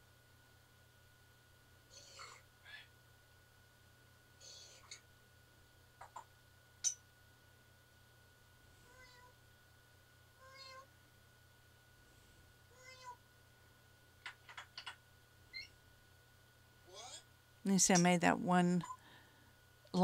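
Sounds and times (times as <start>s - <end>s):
parrot meow-like calls: 15.5s - 15.7s.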